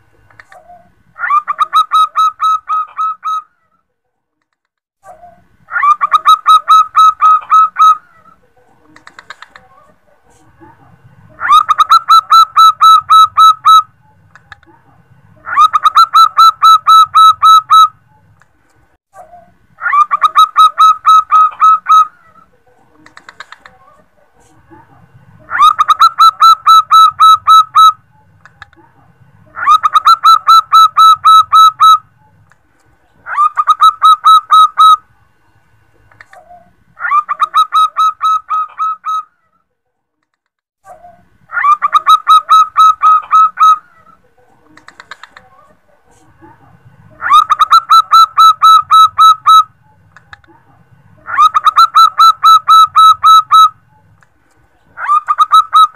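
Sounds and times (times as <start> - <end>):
dove cooing: 0.4 - 3.5, 5.2 - 10.0, 11.3 - 14.6, 19.3 - 24.1, 25.4 - 28.4, 29.5 - 32.4, 47.2 - 50.0, 51.2 - 54.1.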